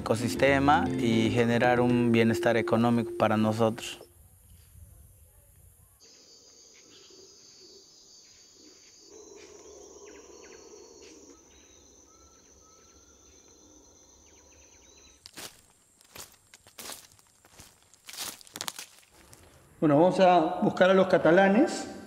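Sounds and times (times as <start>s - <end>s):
insects droning: 5.1s - 20.4s
footsteps crunching through dry leaves: 15.1s - 19.7s.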